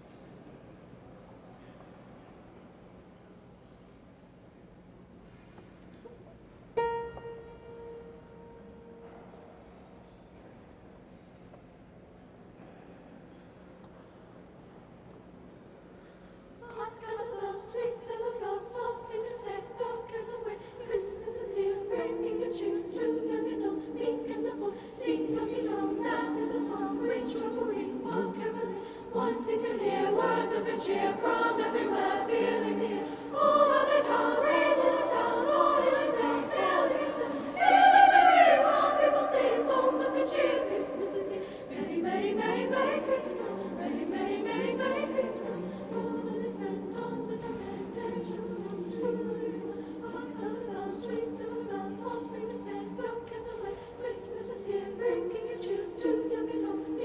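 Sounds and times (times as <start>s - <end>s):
choir singing in parts: 16.6s - 57.0s.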